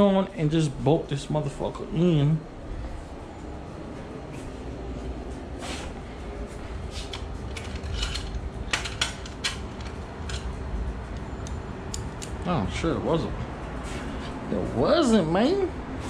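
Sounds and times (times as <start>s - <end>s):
low steady hum: 0.0s - 16.0s
metallic clicks of tools and bolts: 7.1s - 12.3s.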